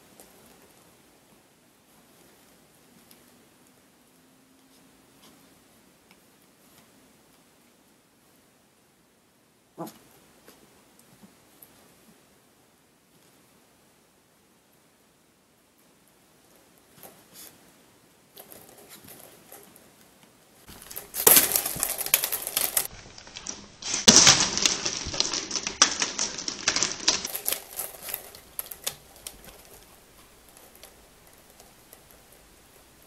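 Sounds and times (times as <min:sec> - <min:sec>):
window blinds clattering: 0:20.7 - 0:33.0.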